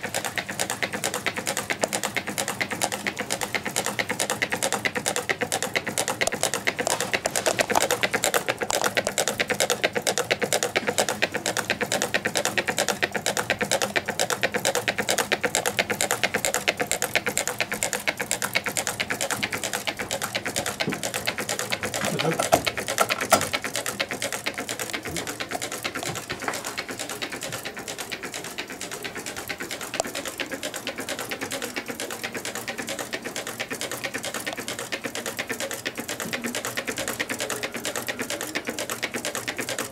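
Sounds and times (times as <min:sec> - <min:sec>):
stirling engine clicking clatter: 0:00.0 - 0:39.9.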